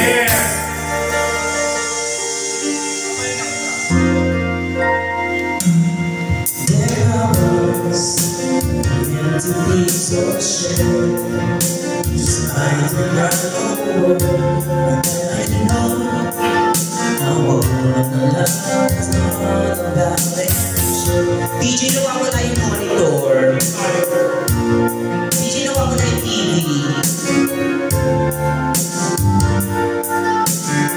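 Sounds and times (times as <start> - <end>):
music with steady beat: 0.0 - 30.9
woman and man singing duet: 6.6 - 11.3, 12.1 - 24.3.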